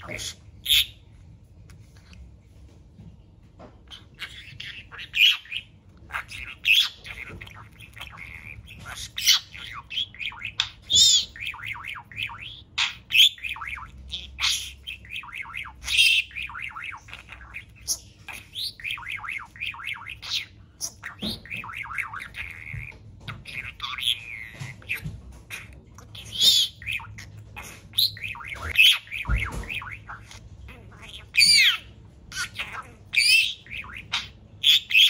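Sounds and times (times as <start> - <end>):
budgerigar squawks: 3.9 - 35.0
budgerigar warbling: 3.9 - 35.0.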